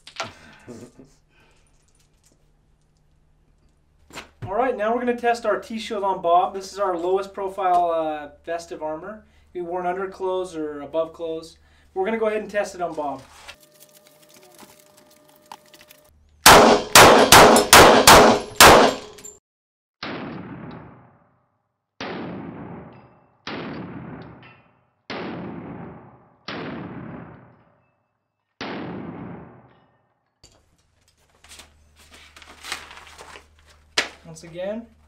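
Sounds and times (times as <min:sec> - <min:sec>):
handgun shots: 0:16.4 - 0:19.3.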